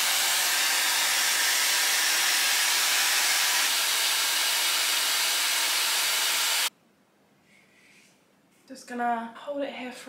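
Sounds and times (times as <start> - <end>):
hair styler blowing air: 0.0 - 6.7.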